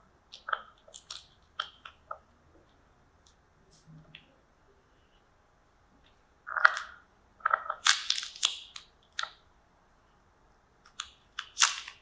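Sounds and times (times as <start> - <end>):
pomegranate crunching: 6.5 - 9.4.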